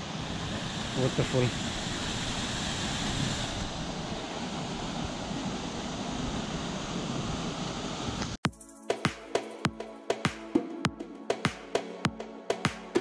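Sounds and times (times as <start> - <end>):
waterfall splashing: 0.0 - 7.7.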